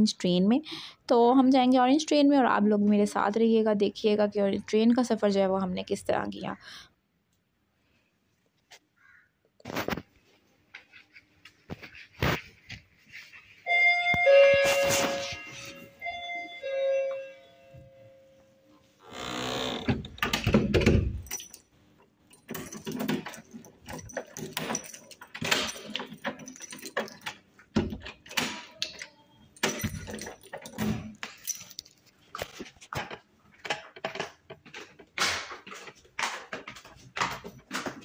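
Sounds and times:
keys jangling on a keyring: 21.2 - 21.7, 22.3 - 27.4, 29.0 - 32.1
footsteps on stone stairs: 32.4 - 38.0.

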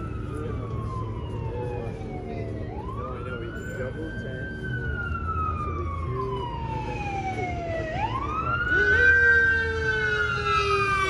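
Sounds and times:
siren wailing: 0.0 - 11.0.

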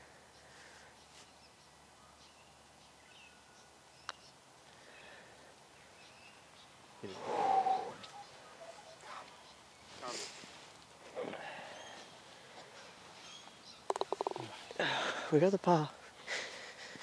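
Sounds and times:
faint bird calls: 3.1 - 15.2
putter striking golf ball: 13.9 - 14.4.

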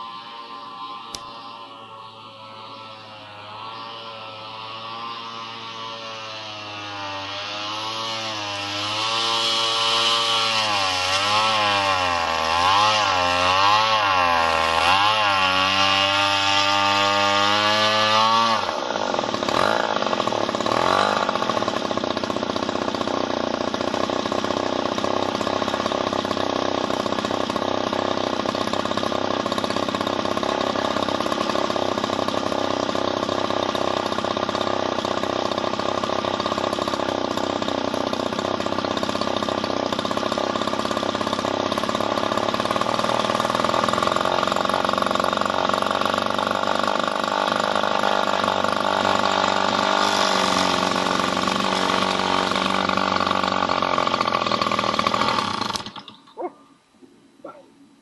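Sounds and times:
model airplane engine running: 0.0 - 6.5.

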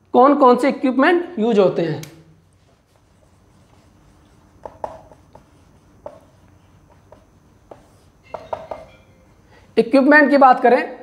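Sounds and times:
low room noise: 0.0 - 11.0
marker squeaking on whiteboard: 2.7 - 9.3.

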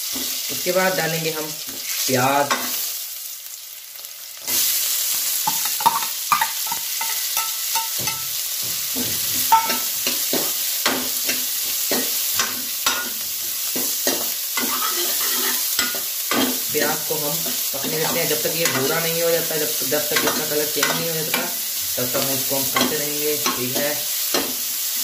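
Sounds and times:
onion sizzling in hot oil: 0.0 - 25.0
spatula scraping metal pan: 14.1 - 16.5.

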